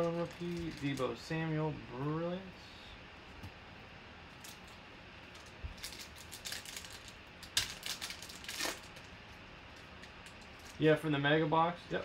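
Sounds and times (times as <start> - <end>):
foil wrapper crinkling and tearing: 0.0 - 1.1, 4.4 - 9.2, 9.8 - 10.9.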